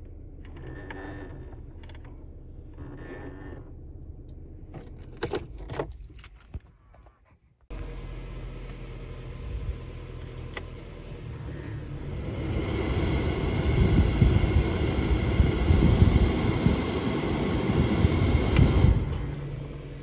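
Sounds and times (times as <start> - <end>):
idling engine hum: 0.0 - 5.7, 7.7 - 20.0
blower fan air rush: 11.2 - 19.4.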